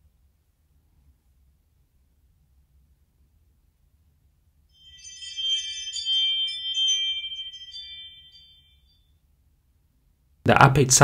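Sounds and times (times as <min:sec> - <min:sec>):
doorbell ringtone: 0:04.8 - 0:09.0.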